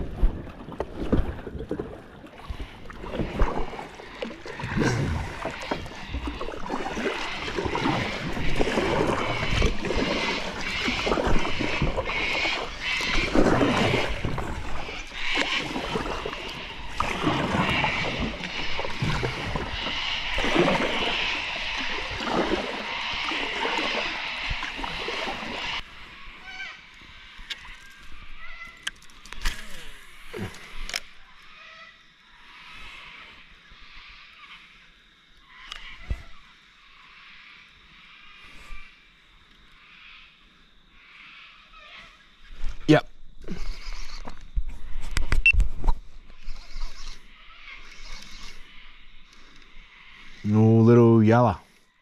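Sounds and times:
paddle strokes: 0.0s - 25.8s
water splashing around hull: 0.0s - 26.0s.

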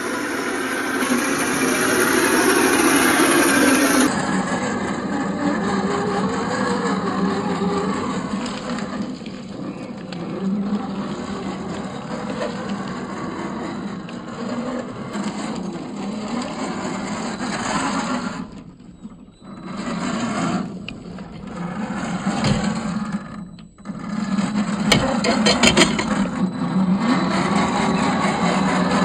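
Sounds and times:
toy car electric motor whining: 0.0s - 29.0s.

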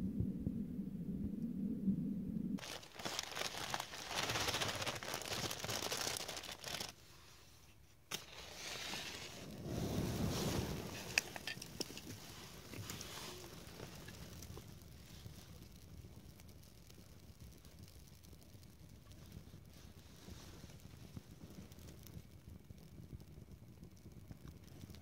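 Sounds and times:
twigs rustling and crinkling: 2.6s - 7.1s, 8.1s - 22.1s
fire crackling: 2.6s - 25.0s.

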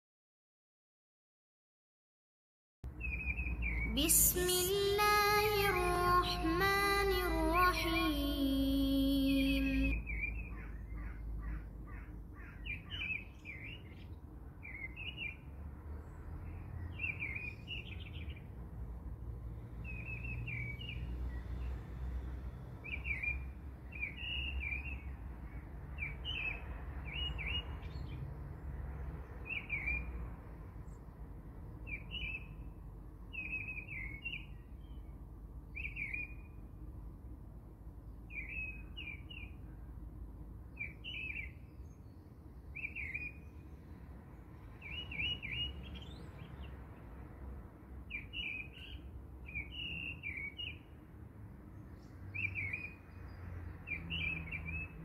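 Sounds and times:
small birds chirping: 2.9s - 18.6s, 31.8s - 36.6s, 38.1s - 39.9s, 40.7s - 47.0s, 48.1s - 51.0s.

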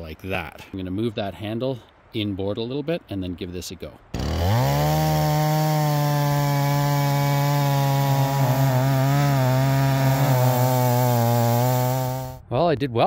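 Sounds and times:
chainsaw cutting log: 4.1s - 12.4s.

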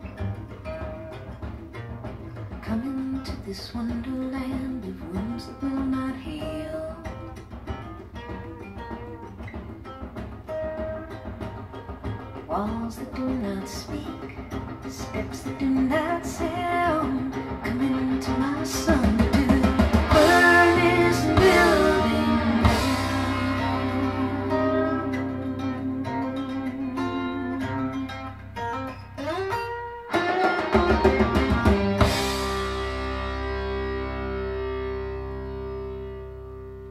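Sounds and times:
drums: 0.0s - 36.9s
plucked guitar: 0.0s - 36.9s
sliding guitar note: 16.0s - 36.9s.

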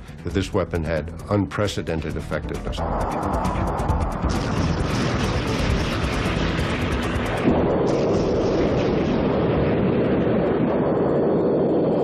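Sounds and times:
cannon rounds exploding: 4.2s - 10.8s.

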